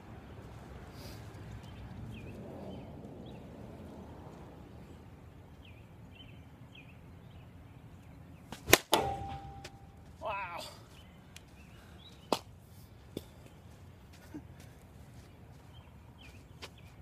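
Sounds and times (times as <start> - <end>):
bat hitting softball: 8.5 - 10.0
ringing smack: 8.7 - 9.9.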